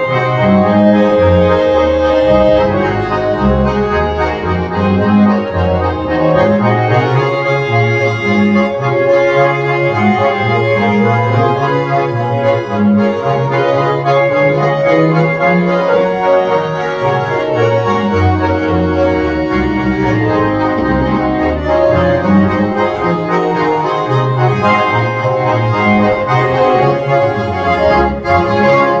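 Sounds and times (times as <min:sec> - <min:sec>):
accordion chords and melody: 0:00.0 - 0:29.0
double bass notes: 0:00.0 - 0:29.0.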